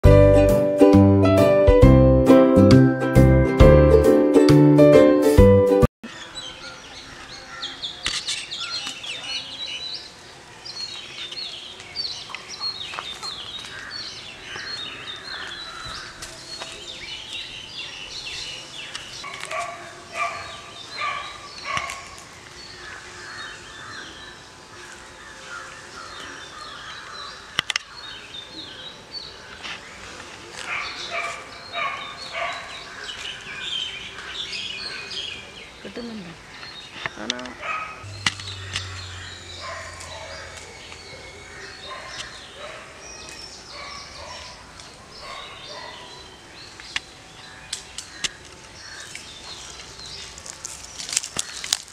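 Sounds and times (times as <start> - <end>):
birds calling and chirping: 6.0 - 51.9
sharp click: 38.2 - 38.9.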